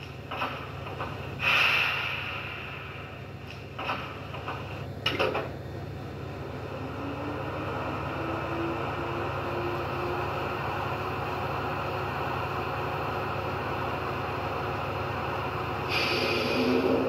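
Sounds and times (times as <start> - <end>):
short hiss: 1.4 - 3.3, 15.9 - 16.8
faint rising whine: 6.0 - 12.7, 14.2 - 17.0.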